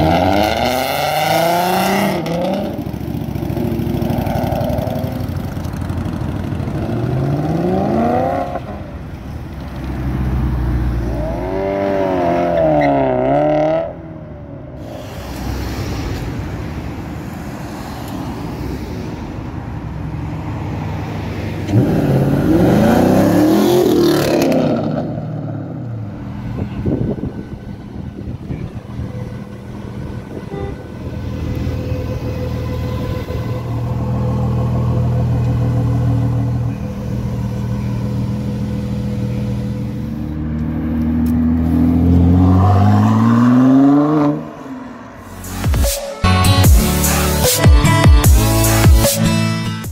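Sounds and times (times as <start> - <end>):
car accelerating away: 0.0 - 8.9, 21.6 - 26.1, 40.3 - 45.2
car engines driving off: 0.0 - 49.9.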